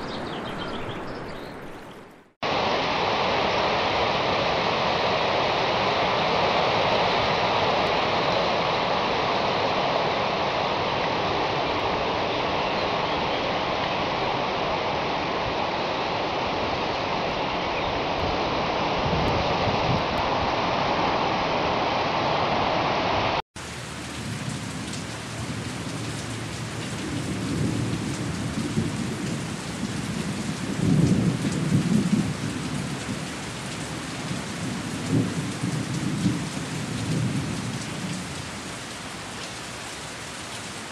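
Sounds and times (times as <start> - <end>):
dense rushing water: 2.4 - 40.9
rain hiss: 2.4 - 40.9
thunder rolling: 26.7 - 33.2.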